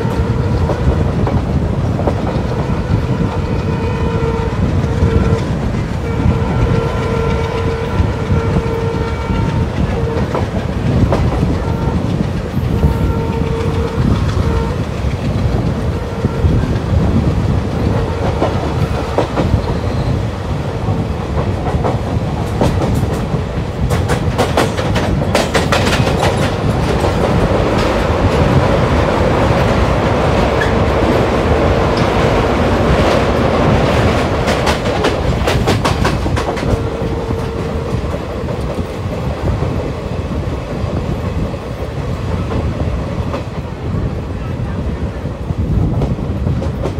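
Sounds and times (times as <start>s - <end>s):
locomotive horn blasts: 0.0s - 1.0s, 2.5s - 10.6s, 11.4s - 14.9s, 15.9s - 16.8s, 17.8s - 20.1s, 36.4s - 38.1s
train wheels rumbling on rail: 0.0s - 46.9s
wheels clacking over rail joints: 20.8s - 40.0s.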